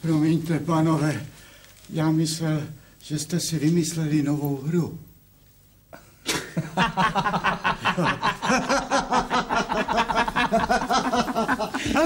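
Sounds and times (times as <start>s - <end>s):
men laughing heartily: 6.5s - 12.0s.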